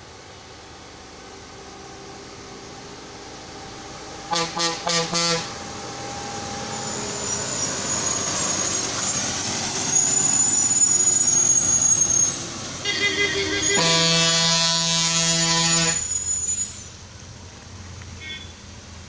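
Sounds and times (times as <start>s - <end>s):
lorry diesel engine passing: 0.0s - 19.0s
lorry horn toots: 4.3s - 5.6s, 12.8s - 16.1s, 18.2s - 18.6s
thin high squeal: 6.7s - 14.0s, 15.1s - 17.0s.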